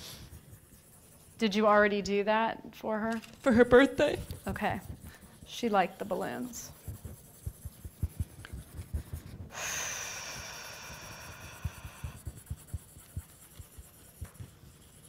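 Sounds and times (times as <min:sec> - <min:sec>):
pencil writing on paper: 0:00.0 - 0:01.8, 0:03.5 - 0:15.0
breathy hiss: 0:09.5 - 0:12.4.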